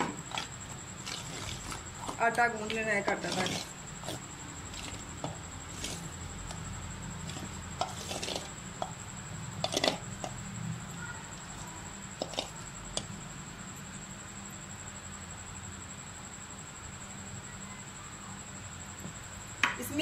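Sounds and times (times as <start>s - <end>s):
dough rubbing and squishing: 0.0s - 9.0s, 9.6s - 10.4s, 11.3s - 13.1s.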